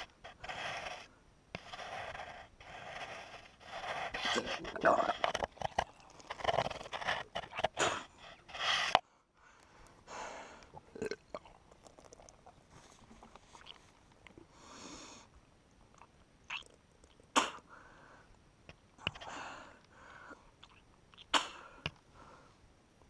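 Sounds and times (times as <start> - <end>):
person breathing: 7.8 - 10.8, 14.4 - 15.4, 17.7 - 18.4, 19.1 - 20.5, 21.5 - 22.6
person retching and heaving: 10.8 - 12.6, 16.0 - 17.6, 20.6 - 21.6.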